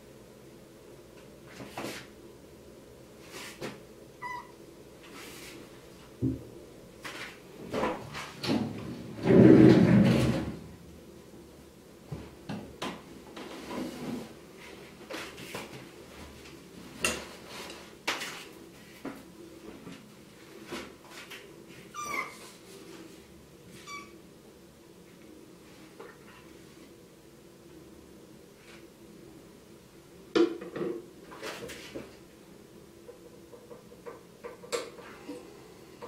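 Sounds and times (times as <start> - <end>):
knocks and scrapes in sink: 9.2 - 10.6.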